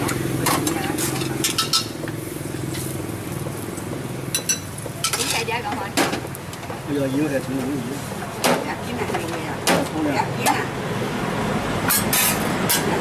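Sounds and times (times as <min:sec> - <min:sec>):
metal utensil scraping a pan: 0:00.4 - 0:02.0, 0:04.4 - 0:05.7, 0:11.9 - 0:13.0.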